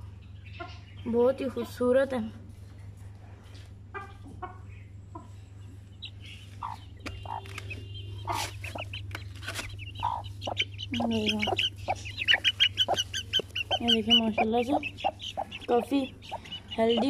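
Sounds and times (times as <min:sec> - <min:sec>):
steady low hum: 0:00.0 - 0:17.0
chicks peeping: 0:00.2 - 0:01.8, 0:03.9 - 0:17.0
hen clucking softly: 0:03.9 - 0:05.4, 0:06.0 - 0:17.0.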